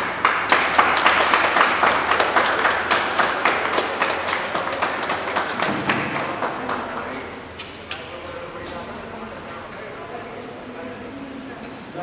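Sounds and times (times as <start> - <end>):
people applauding: 0.0 - 7.4.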